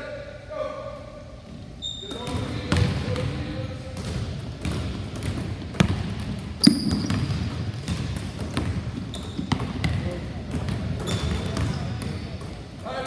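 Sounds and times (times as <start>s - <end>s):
short high squeak: 1.8s - 2.2s
basketballs thudding on wooden floor: 2.2s - 3.3s, 3.9s - 12.6s.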